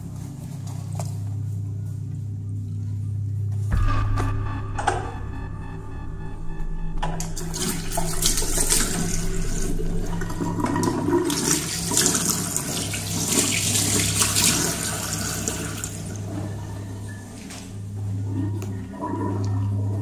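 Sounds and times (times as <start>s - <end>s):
low steady hum: 0.0s - 20.0s
toilet flushing: 7.4s - 20.0s.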